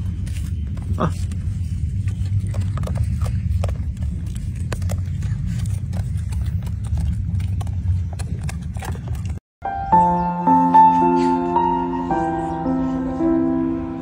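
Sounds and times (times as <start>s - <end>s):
low rumble: 0.0s - 9.4s.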